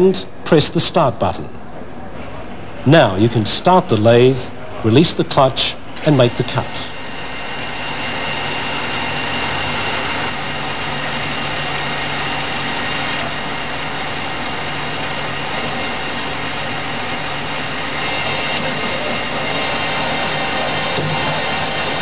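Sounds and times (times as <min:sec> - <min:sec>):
lathe motor humming: 0:05.6 - 0:22.0
lathe tool cutting hiss: 0:15.3 - 0:22.0.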